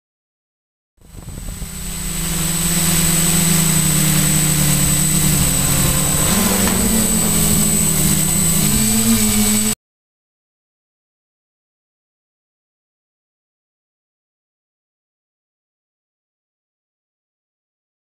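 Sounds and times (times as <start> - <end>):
drone motors buzzing: 1.0 - 9.8.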